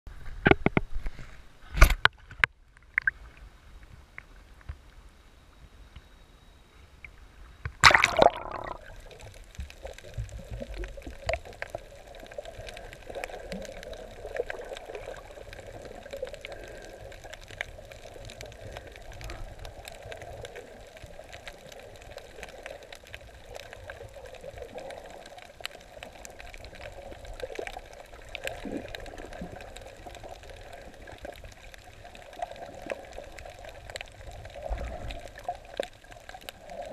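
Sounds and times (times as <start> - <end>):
muffled underwater wash: 0.1 - 36.9
water splashing: 7.8 - 16.8
fine crackling clicks: 8.9 - 36.9.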